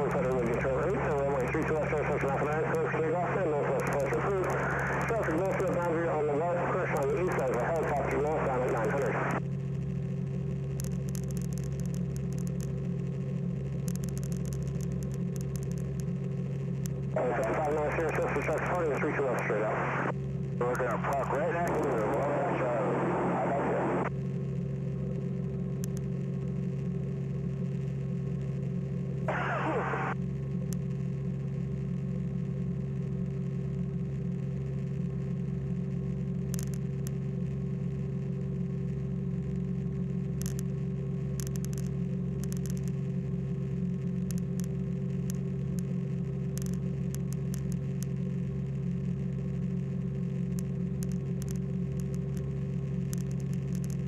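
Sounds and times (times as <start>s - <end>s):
aircraft engine drone in cabin: 0.0s - 54.0s
faint clicks: 10.7s - 12.8s, 13.8s - 20.1s, 25.8s - 26.1s, 36.5s - 37.2s, 40.4s - 40.7s, 41.3s - 43.0s, 44.2s - 45.9s, 46.5s - 48.2s, 50.5s - 54.0s.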